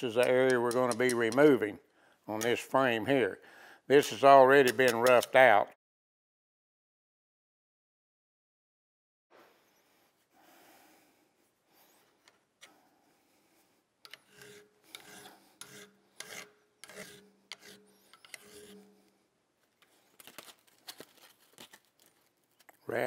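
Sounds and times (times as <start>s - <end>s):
file stroking steel: 0.0s - 1.6s, 4.5s - 5.5s, 14.1s - 19.1s.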